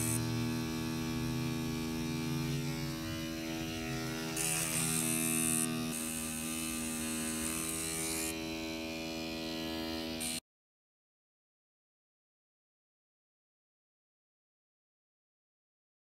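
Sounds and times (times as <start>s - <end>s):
tattoo machine buzzing: 0.0s - 10.4s.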